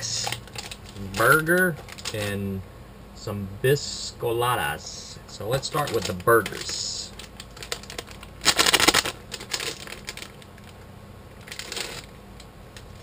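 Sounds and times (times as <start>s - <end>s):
plastic wrapper tearing and crinkling: 0.2s - 2.2s, 5.8s - 10.8s, 11.4s - 12.1s.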